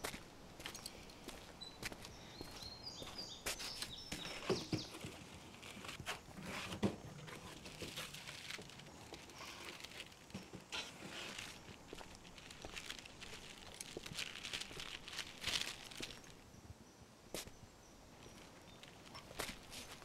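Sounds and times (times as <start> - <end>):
footsteps: 0.0 - 16.4, 18.8 - 20.0
things being handled: 4.1 - 16.4
rummaging in cardboard box: 4.4 - 16.3.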